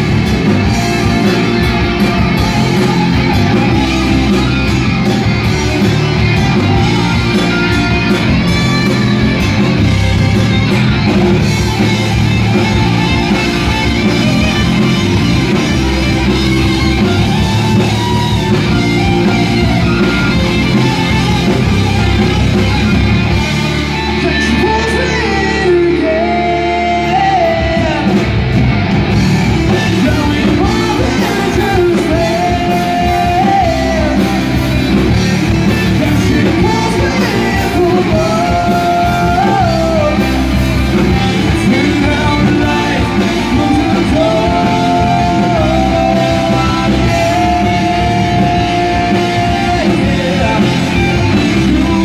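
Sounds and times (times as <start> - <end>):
bass guitar: 0.0 - 52.0
distorted electric guitars: 0.0 - 52.0
drums: 0.0 - 52.0
person singing: 24.0 - 28.4, 29.4 - 52.0.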